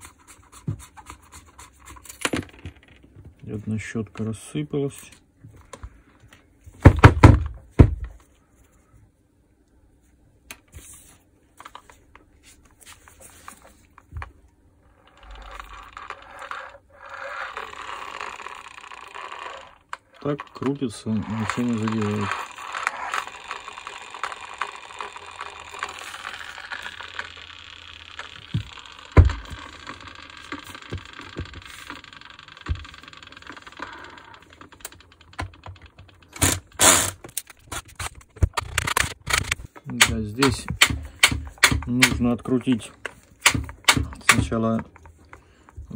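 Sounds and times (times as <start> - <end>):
power drill running: 17.2 - 34.9.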